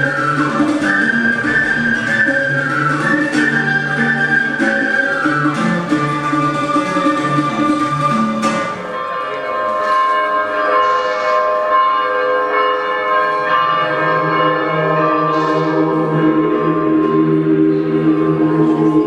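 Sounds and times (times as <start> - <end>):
bells ringing in a peal: 7.5 - 19.0.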